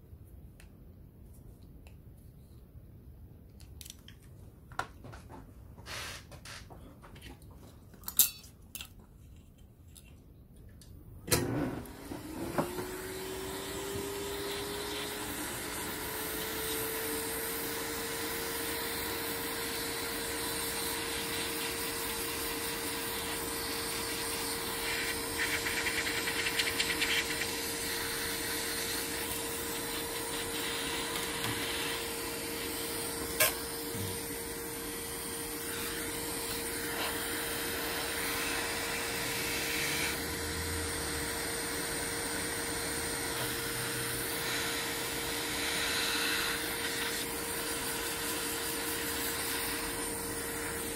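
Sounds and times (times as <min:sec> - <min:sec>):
hot air gun fan whine: 0:11.3 - 0:50.9.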